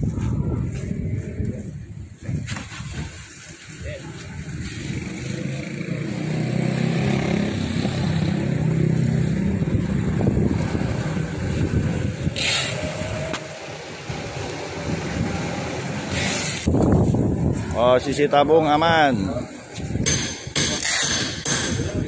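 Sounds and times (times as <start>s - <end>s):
vehicle engine running: 4.8s - 16.7s.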